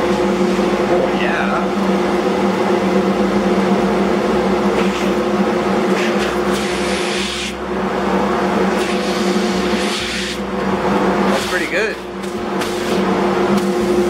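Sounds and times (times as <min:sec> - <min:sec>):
dust collector motor hum: 0:00.0 - 0:14.0
air rushing through hoses: 0:05.9 - 0:07.6, 0:08.7 - 0:10.5, 0:12.5 - 0:14.0.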